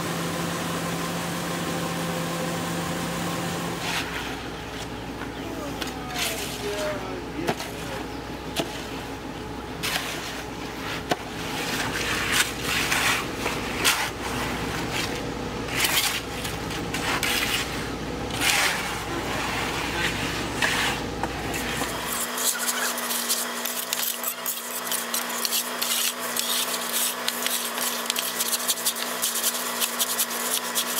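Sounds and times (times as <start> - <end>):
engine running: 0.0 - 30.9
shovels scraping wet concrete: 3.8 - 9.1, 9.8 - 30.9.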